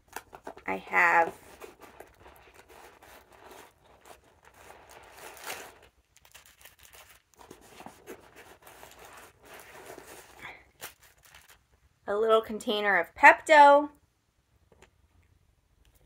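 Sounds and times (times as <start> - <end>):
packaging rustling and crinkling: 0.0 - 11.8.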